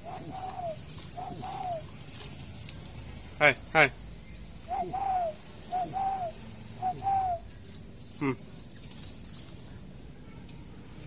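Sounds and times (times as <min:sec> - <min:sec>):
dove cooing: 0:00.0 - 0:07.6
small bird chirping: 0:00.0 - 0:07.6, 0:08.4 - 0:11.0.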